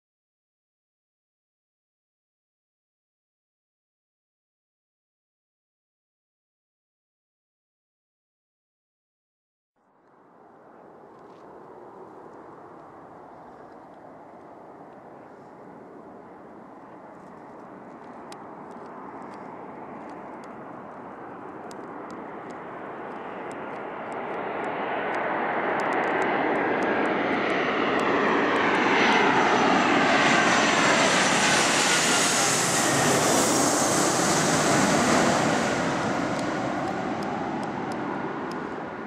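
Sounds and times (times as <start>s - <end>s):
jet engines rushing and whining: 10.3s - 39.0s.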